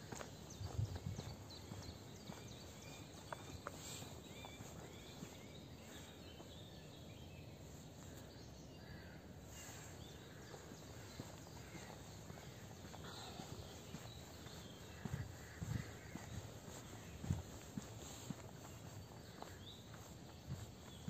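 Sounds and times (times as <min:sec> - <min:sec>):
small birds chirping and whistling: 0:00.0 - 0:07.6, 0:12.3 - 0:21.0.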